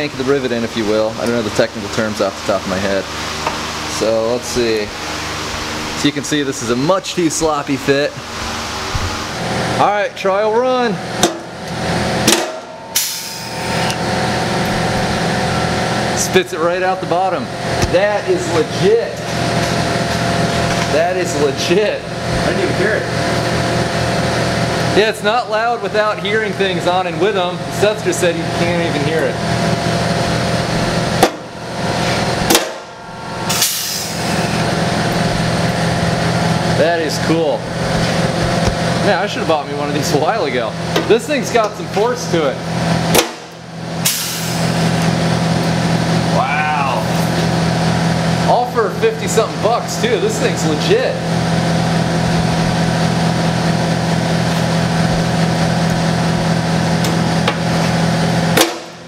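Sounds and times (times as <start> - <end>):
steady machine hum: 0.0 - 59.0
short air hiss: 33.5 - 34.3, 44.1 - 44.7.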